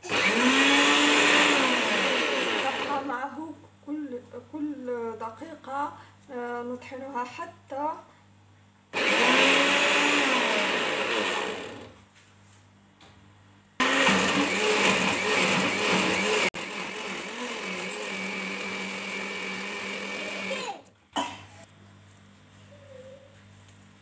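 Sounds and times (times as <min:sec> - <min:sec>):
blender grinding: 0:00.0 - 0:03.1, 0:09.0 - 0:12.0, 0:13.8 - 0:20.9.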